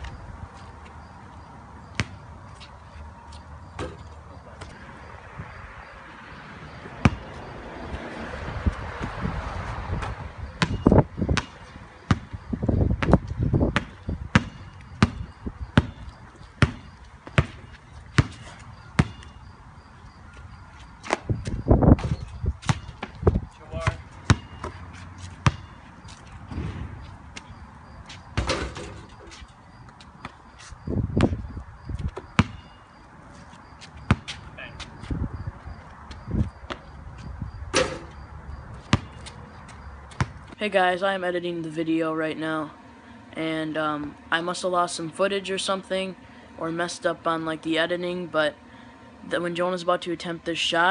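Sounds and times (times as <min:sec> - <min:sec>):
basketball bouncing on concrete: 0:01.8 - 0:02.2, 0:06.7 - 0:19.5, 0:20.1 - 0:30.4, 0:31.0 - 0:32.8, 0:33.8 - 0:40.6.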